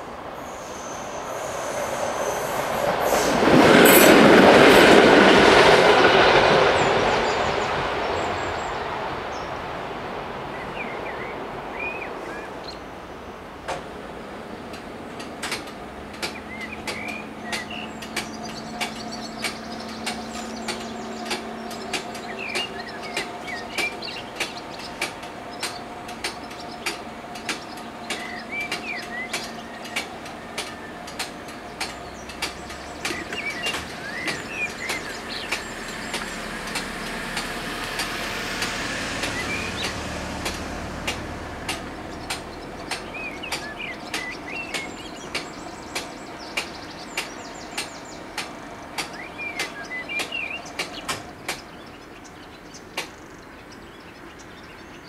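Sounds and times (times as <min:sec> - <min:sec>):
birds chirping: 0:14.2 - 0:55.0
vehicle passing: 0:32.0 - 0:43.4.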